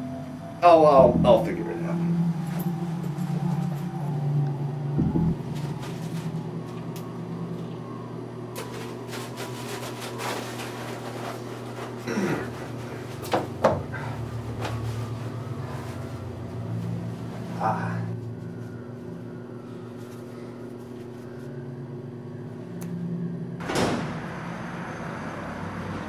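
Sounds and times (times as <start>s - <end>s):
steady low hum: 0.0s - 23.7s
packet rustling: 8.6s - 12.0s.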